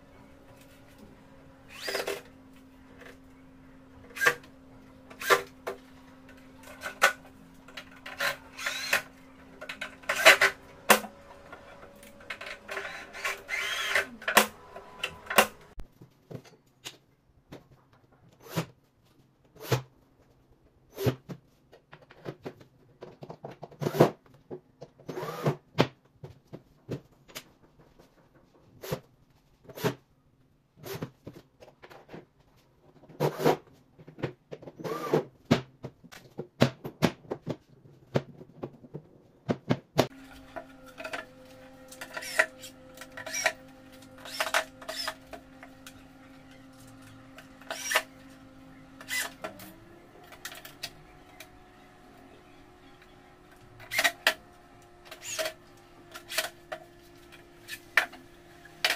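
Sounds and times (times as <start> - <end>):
cordless drill whirring: 0.3 - 3.4, 4.1 - 15.8, 40.1 - 58.9
knocks and clatter of wooden parts: 4.0 - 18.4, 21.0 - 29.9, 30.8 - 51.7, 53.4 - 58.9.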